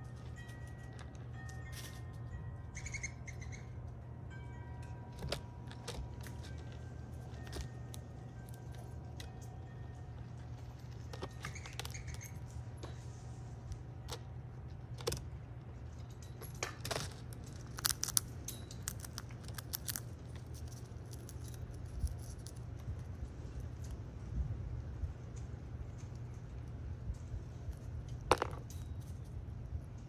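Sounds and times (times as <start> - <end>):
steady low hum: 0.0 - 30.0
squirrel cracking peanut shell: 10.7 - 12.5, 16.4 - 24.0.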